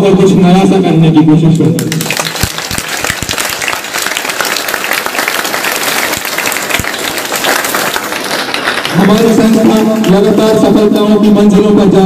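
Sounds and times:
audience applauding: 1.8 - 10.7.

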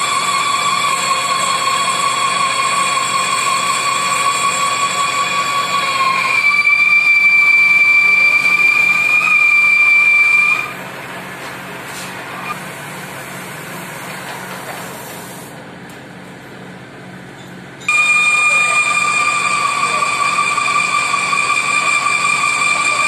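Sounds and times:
metal lathe cutting steel: 0.0 - 11.4, 17.9 - 23.0.

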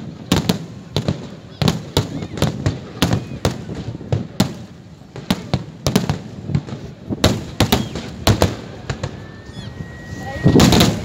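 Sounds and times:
fireworks bursting: 0.0 - 11.0
thin steady whistle: 7.6 - 11.0.

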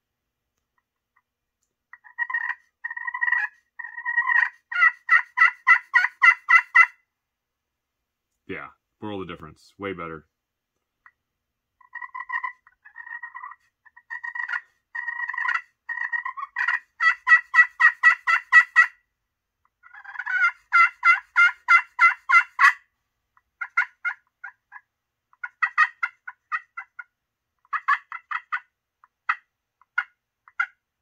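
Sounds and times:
slate turkey call purring: 1.9 - 7.0, 11.8 - 19.0, 19.8 - 22.8, 23.6 - 30.8
turkey call clucks: 1.9 - 7.0, 11.8 - 19.1, 19.7 - 30.8
turkey call hen yelps: 1.9 - 7.0, 11.8 - 19.0, 19.8 - 30.8.

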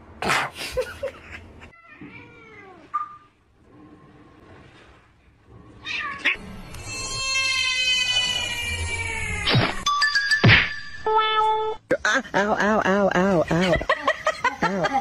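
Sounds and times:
cats meowing: 1.7 - 3.3, 5.8 - 9.8.

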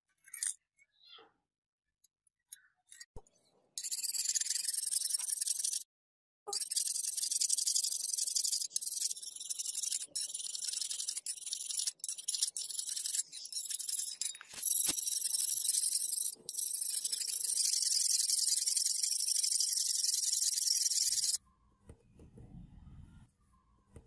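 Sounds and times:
file rasping on steel: 6.5 - 21.4.

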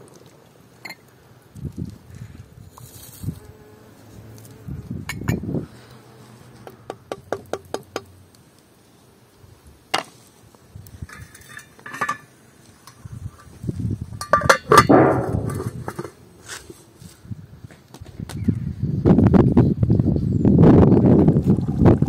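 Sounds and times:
pot lid metallic clatter: 11.1 - 12.3, 14.2 - 16.1.

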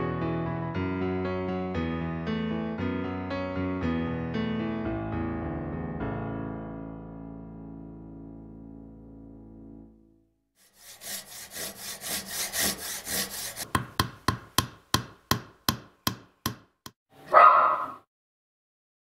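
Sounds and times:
hand saw cutting wood: 10.6 - 13.8
sharp knocks on wood: 13.6 - 17.0
dog barking: 17.2 - 18.1.

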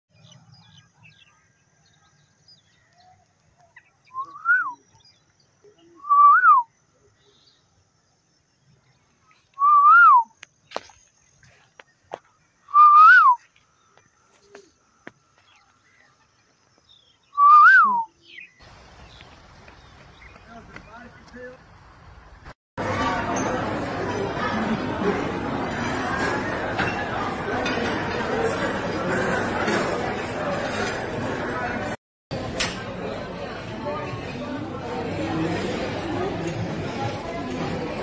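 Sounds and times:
whistled phrase: 4.1 - 4.8, 5.9 - 6.7, 9.5 - 10.4, 12.7 - 13.5, 17.3 - 18.2.

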